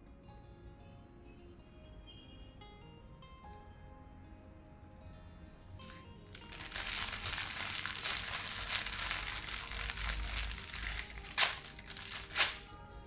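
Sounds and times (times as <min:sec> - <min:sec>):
plastic wrapper crinkling: 0:05.9 - 0:12.8.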